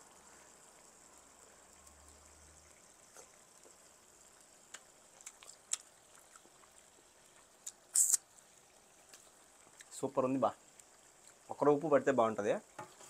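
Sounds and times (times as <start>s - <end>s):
mouth clicks and smacks chewing: 4.7s - 8.2s.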